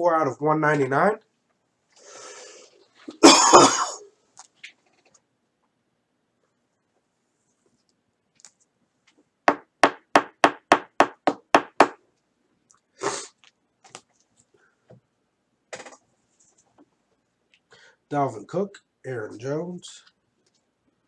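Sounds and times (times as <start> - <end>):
sharp knocks: 9.5 - 12.0.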